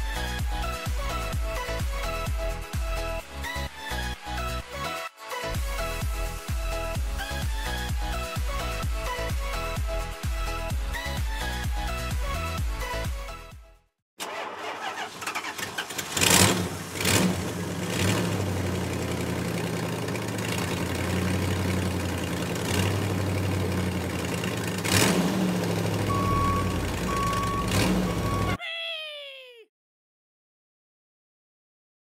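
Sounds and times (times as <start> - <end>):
vehicle engine starting and running: 14.2 - 28.6
high beeps: 26.1 - 28.6.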